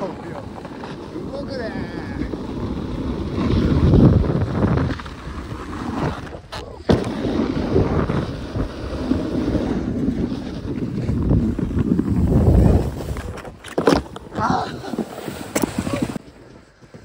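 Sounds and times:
wind buffeting microphone: 1.0s - 13.6s.

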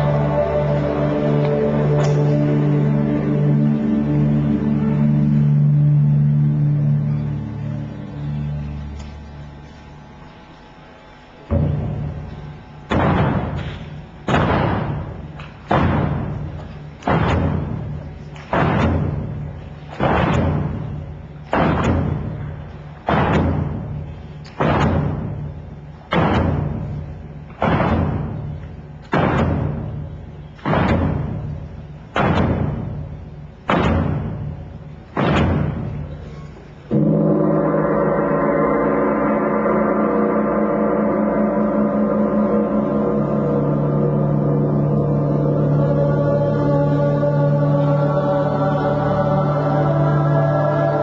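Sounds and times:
sustained full chord: 0.0s - 17.0s, 35.8s - 51.0s
deep bell tolling: 36.0s - 46.7s.

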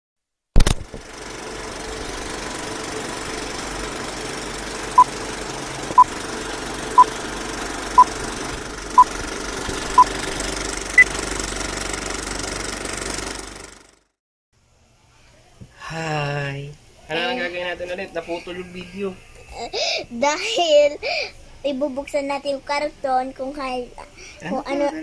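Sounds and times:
film projector rattling: 0.6s - 14.1s.

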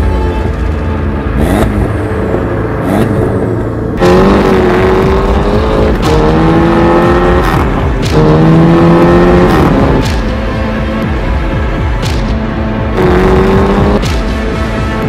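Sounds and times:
car engine accelerating hard: 0.0s - 10.4s, 12.8s - 14.4s.

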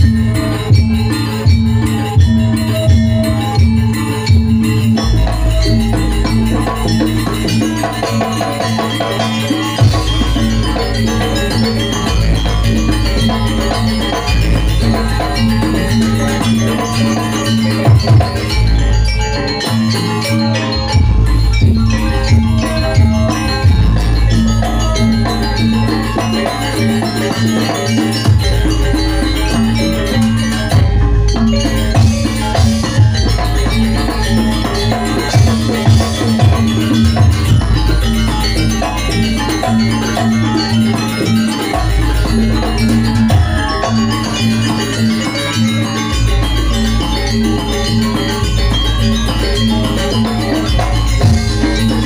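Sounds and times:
drums: 0.0s - 52.0s
gamelan music: 0.0s - 52.0s
metal-keyed percussion melody: 0.0s - 52.0s
deep low strikes: 21.0s - 25.5s.

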